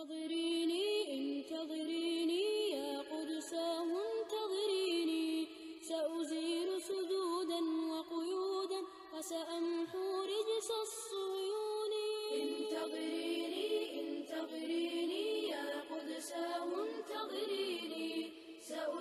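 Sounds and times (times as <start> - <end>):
unaccompanied vocal chanting: 9.2 - 19.0.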